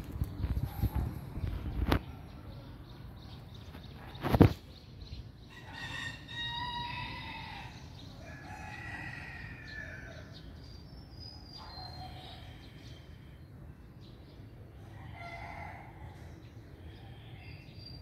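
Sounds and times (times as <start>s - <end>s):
rooster crowing: 5.5s - 10.4s.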